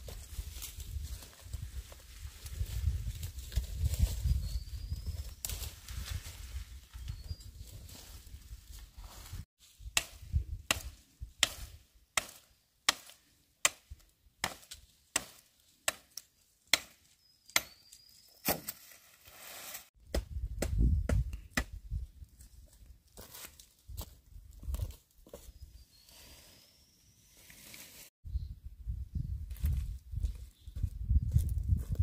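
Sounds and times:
machete chopping bamboo: 10.0s - 17.8s, 18.4s - 18.8s.

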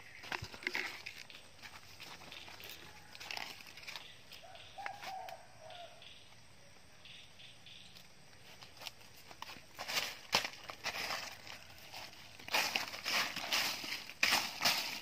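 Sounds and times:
footsteps crunching dry leaves: 0.0s - 5.3s, 8.4s - 15.0s
twigs crackling: 0.0s - 5.4s, 7.9s - 15.0s.

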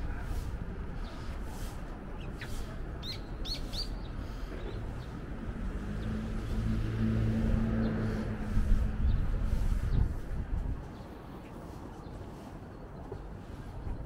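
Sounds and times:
street rumble: 0.0s - 14.0s
small bird chirping: 2.2s - 5.1s
vehicle engine hum: 4.2s - 10.8s.

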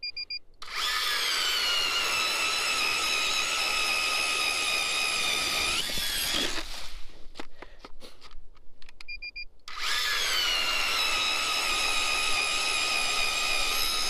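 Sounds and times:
electric ice auger whining: 0.6s - 7.0s, 9.7s - 14.0s.

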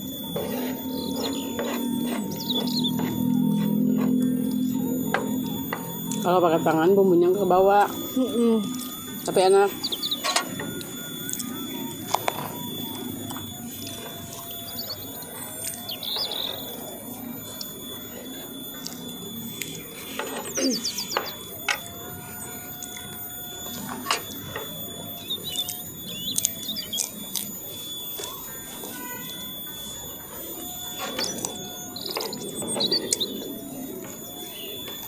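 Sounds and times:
bird chirps: 0.0s - 35.0s
chewing: 8.6s - 21.1s, 25.2s - 28.9s.

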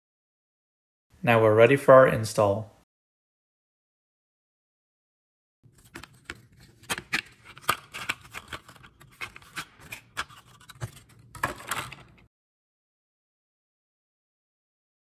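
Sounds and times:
plastic blister pack tearing: 6.0s - 12.2s.

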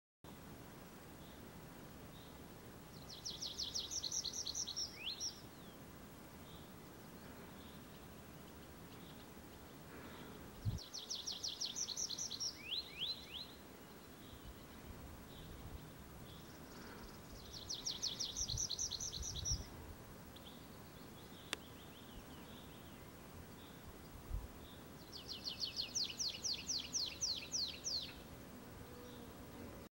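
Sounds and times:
bird singing fast trills: 16.3s - 19.7s, 25.0s - 28.2s.

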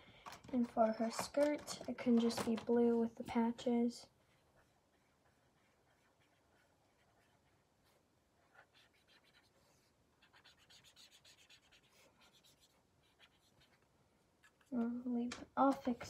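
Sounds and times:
marker scratching on paper: 4.3s - 13.8s.

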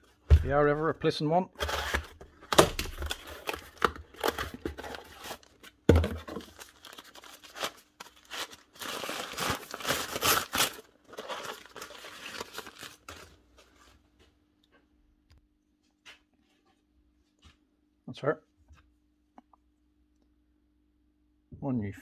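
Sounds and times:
cardboard box being opened: 1.6s - 13.2s
packing paper crinkling: 1.6s - 13.9s.

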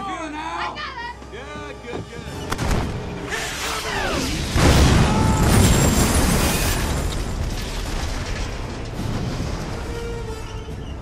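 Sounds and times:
big explosion rumbling: 4.5s - 10.2s.

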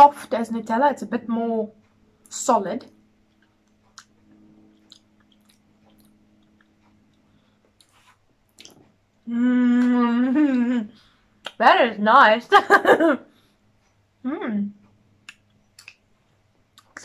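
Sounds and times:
lip smacks and tongue clicks: 3.3s - 9.0s, 15.2s - 17.0s
person humming mmm: 8.6s - 11.0s.

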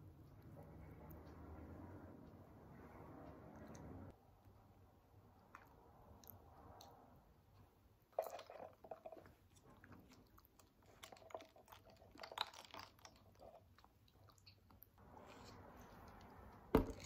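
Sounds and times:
faint close-up chewing: 5.2s - 17.0s.

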